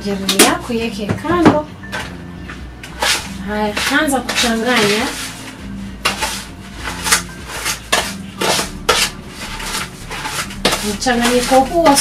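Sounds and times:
cutlery scraping a plastic bowl: 2.8 - 12.0.

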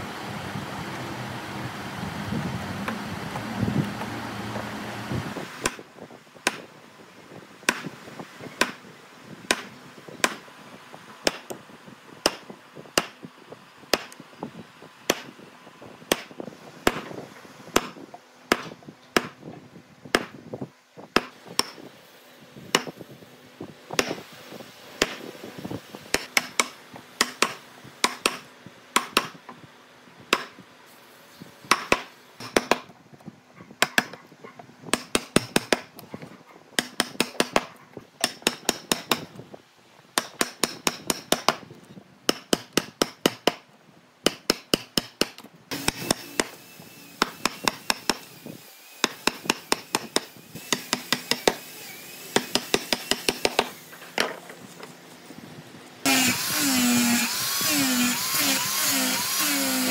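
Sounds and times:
hammering on wood: 9.5 - 10.4, 17.8 - 19.4, 20.1 - 20.4, 22.7 - 23.0, 26.1 - 28.4, 29.0 - 29.4, 31.7 - 32.9, 33.8 - 34.2, 34.9 - 35.9, 36.8 - 39.3, 40.2 - 41.6, 42.3 - 43.6, 44.2 - 46.5, 47.2 - 48.2, 49.0 - 51.6, 52.4 - 54.3.

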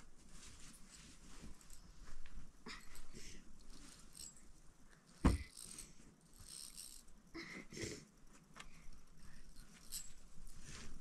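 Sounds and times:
cloth rustling: 0.0 - 2.6.

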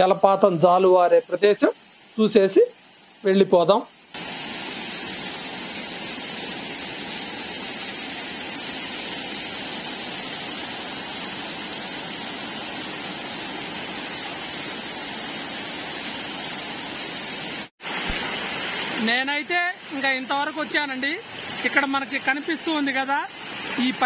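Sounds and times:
stream rushing over boulders: 0.0 - 24.0.

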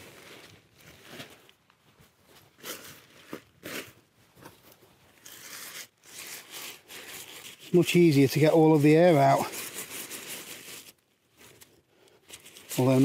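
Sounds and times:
tarp fabric rustling and crinkling: 0.0 - 13.0.

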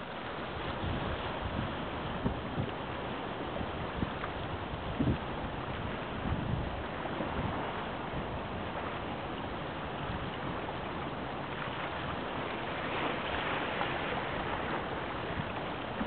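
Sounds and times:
water noise: 0.0 - 16.0
wind: 0.0 - 16.0.

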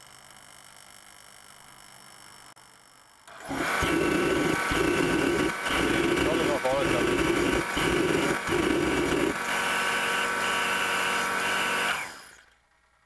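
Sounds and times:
fan motor whirring: 3.3 - 12.6.

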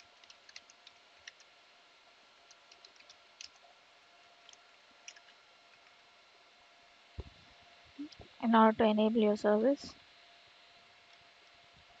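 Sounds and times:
faint keyboard typing: 0.0 - 1.7, 2.4 - 3.8, 4.4 - 6.0.

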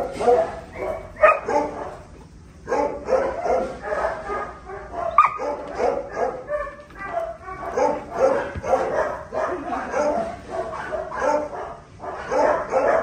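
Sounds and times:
dogs barking: 0.0 - 13.0
dog yipping: 0.2 - 2.0, 2.7 - 10.2.

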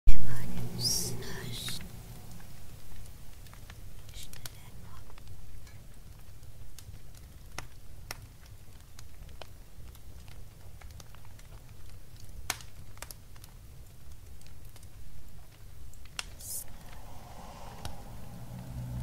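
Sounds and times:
low steady rumble: 0.1 - 6.2, 16.0 - 19.0
fire crackling and popping: 0.3 - 19.0.

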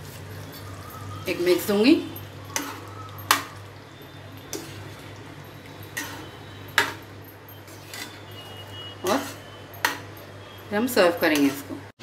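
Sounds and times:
spoon stirring thick gravy: 0.0 - 10.7.

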